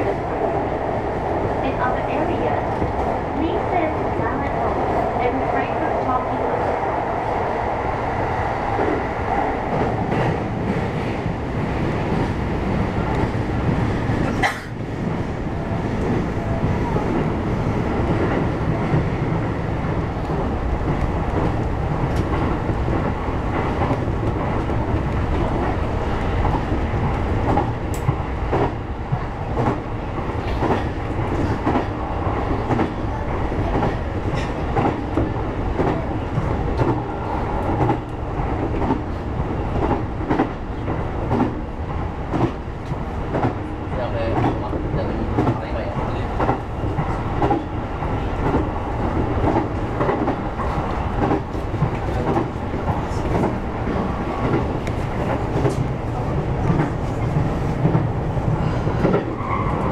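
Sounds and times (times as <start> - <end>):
clacks over rail joints: 44.3 - 45.6, 46.4 - 47.7, 49.4 - 56.0, 59.0 - 59.7.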